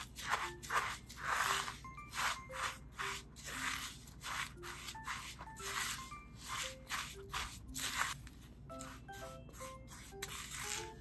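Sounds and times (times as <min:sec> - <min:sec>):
soft background music: 0:00.0 - 0:11.0
utensil scraping in a bowl: 0:00.0 - 0:11.0.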